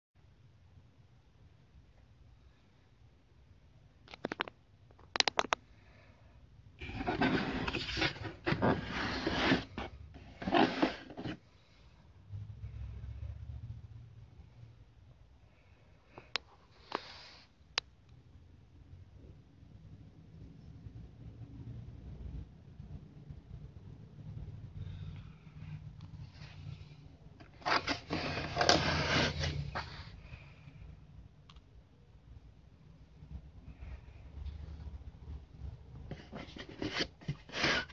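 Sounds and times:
cardboard box scraping on carpet: 0:06.8 - 0:11.5, 0:27.6 - 0:30.1, 0:36.1 - 0:37.9.

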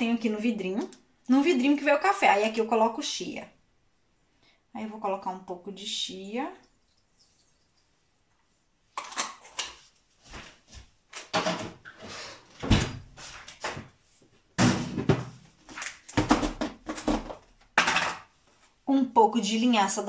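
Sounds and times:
cupboard door opening and shutting: 0:11.2 - 0:13.9, 0:14.6 - 0:15.4
jars knocking and clattering: 0:16.2 - 0:18.3.

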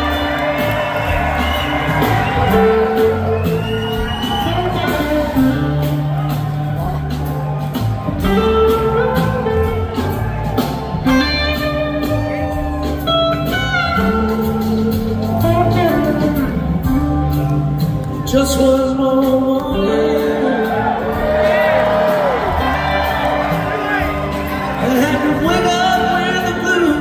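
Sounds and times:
blues-rock band playing: 0:00.0 - 0:27.0
electric guitar: 0:00.0 - 0:27.0.

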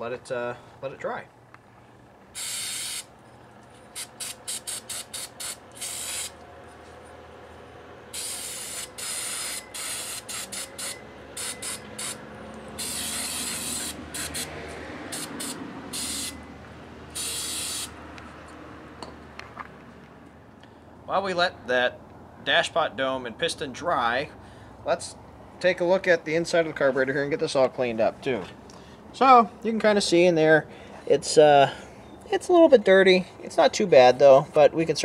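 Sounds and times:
aerosol can spraying in hissing bursts: 0:02.4 - 0:03.1, 0:04.0 - 0:06.4, 0:08.2 - 0:12.2, 0:12.8 - 0:14.5, 0:15.1 - 0:16.4, 0:17.2 - 0:18.0.

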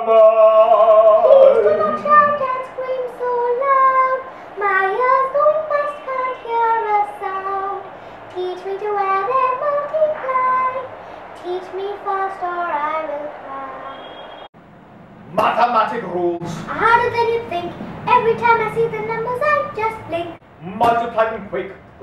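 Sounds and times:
girl singing: 0:01.3 - 0:14.0, 0:16.7 - 0:20.4.

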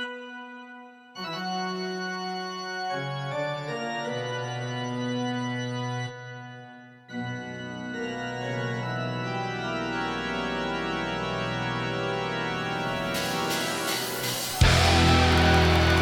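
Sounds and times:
held organ chords: 0:00.0 - 0:16.0
hissy swell: 0:13.2 - 0:16.0.

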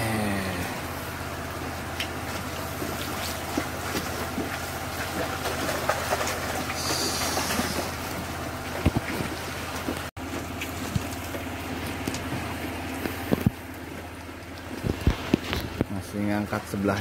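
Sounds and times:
motor humming: 0:00.0 - 0:15.9
water splashing in a net: 0:02.3 - 0:13.1.

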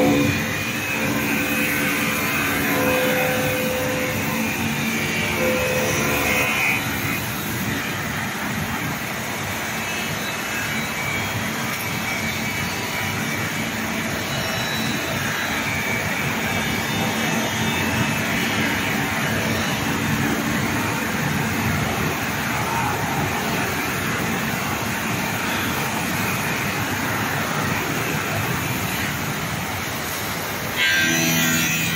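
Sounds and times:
grinding wheel on glass: 0:00.0 - 0:06.9.

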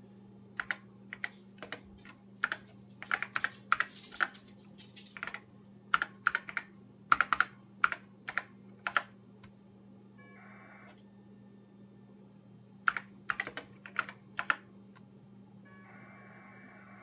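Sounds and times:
computer keyboard typing: 0:00.6 - 0:09.4, 0:12.9 - 0:14.8.

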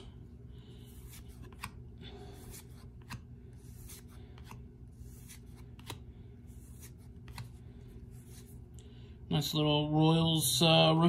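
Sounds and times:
low steady hum: 0:00.0 - 0:11.0
trading cards being flipped: 0:00.9 - 0:01.8, 0:02.4 - 0:08.7.

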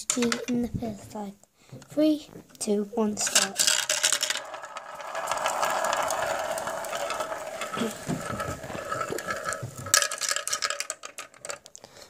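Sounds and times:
marbles clicking on plastic track: 0:00.1 - 0:00.5, 0:03.2 - 0:11.8
marbles rolling in plastic funnel: 0:03.2 - 0:11.8
knocks of marbles: 0:03.3 - 0:11.6.

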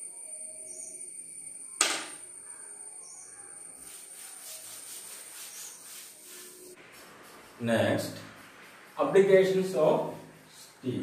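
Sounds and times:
duster rubbing on blackboard: 0:03.8 - 0:07.6.

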